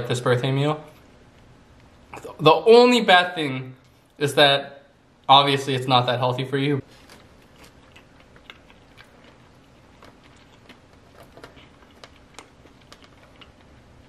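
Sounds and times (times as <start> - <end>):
faint chewing: 6.8 - 14.0.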